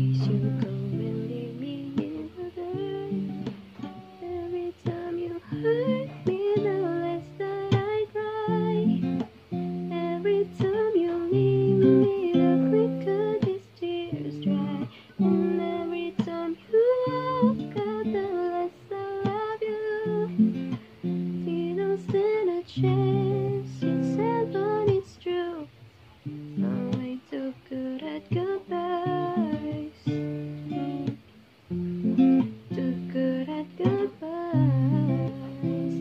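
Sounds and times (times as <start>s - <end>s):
person singing: 0.0s - 25.7s, 26.6s - 30.2s, 32.6s - 36.0s
acoustic guitar: 0.0s - 36.0s.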